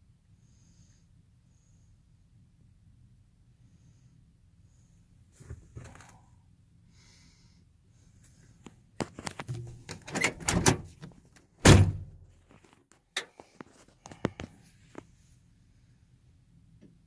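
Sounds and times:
heavy thump: 11.6s - 12.1s.

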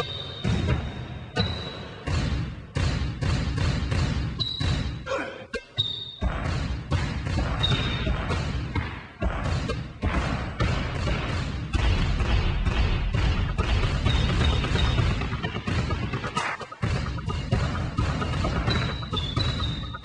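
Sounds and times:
sneaker squeaks: 0.0s - 2.0s, 4.2s - 6.4s, 7.4s - 9.9s, 13.9s - 15.2s, 18.4s - 20.0s
basketballs dribbling on hard floor: 0.0s - 5.0s, 5.8s - 20.0s
music: 9.2s - 20.0s.

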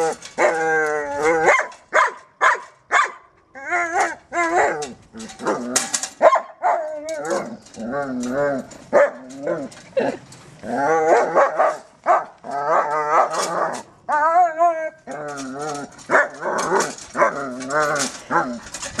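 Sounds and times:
dog grumbling and barking: 0.0s - 1.8s, 3.6s - 19.0s
dog whining: 6.6s - 11.8s, 12.4s - 18.6s.

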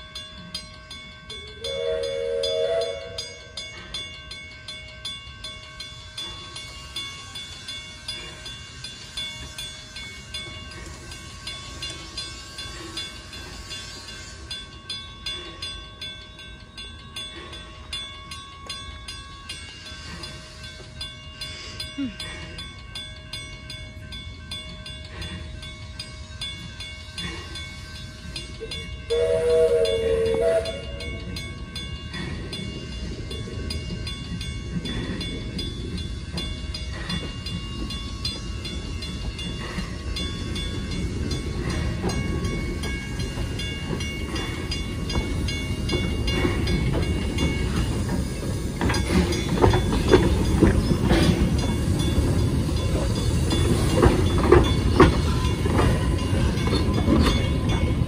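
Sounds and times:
steam locomotive running: 0.0s - 58.0s
steam locomotive whistle: 1.6s - 3.4s, 29.1s - 31.2s
locomotive clanks: 5.9s - 58.0s.

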